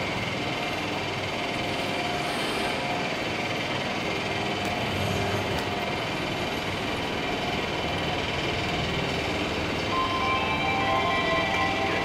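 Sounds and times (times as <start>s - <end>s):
standing trains humming: 0.0s - 12.0s
faint held tone: 9.9s - 12.0s.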